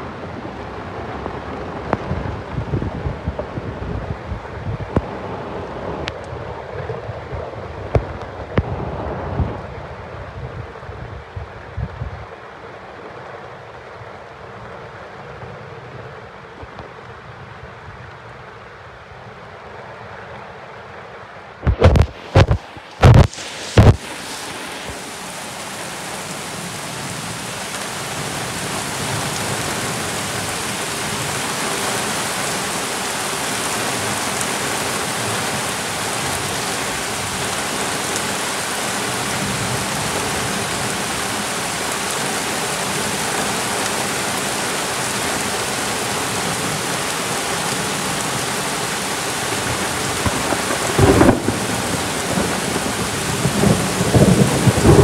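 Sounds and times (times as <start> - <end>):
torrential rain pouring: 0.0 - 55.0
raindrops clicking on microphone: 1.1 - 9.7, 21.6 - 26.2, 49.5 - 52.8.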